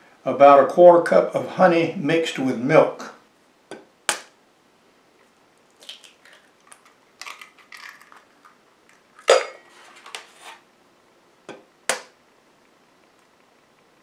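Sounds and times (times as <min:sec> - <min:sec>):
eggs cracked against bowl: 0:05.8 - 0:09.6.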